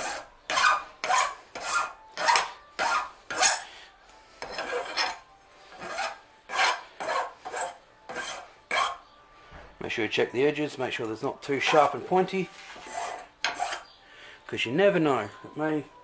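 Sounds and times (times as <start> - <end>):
hand file rasping on metal: 0.0 - 3.7, 4.3 - 9.1, 11.6 - 13.9.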